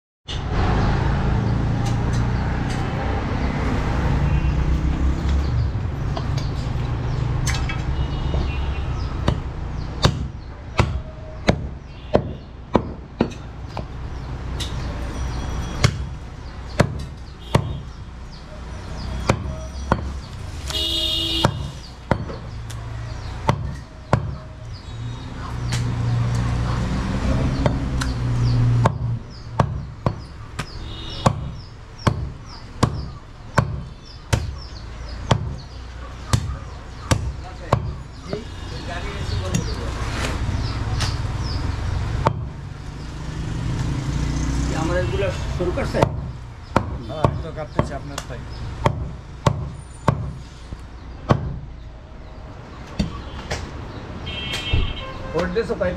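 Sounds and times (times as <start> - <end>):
cleaver chopping on wooden block: 9.2 - 13.9, 15.8 - 16.2, 16.8 - 17.9, 19.2 - 20.2, 21.4 - 22.8, 23.4 - 24.4, 27.4 - 35.7, 36.3 - 38.5, 42.2 - 42.6, 45.9 - 50.4, 51.2 - 51.6, 52.9 - 53.7.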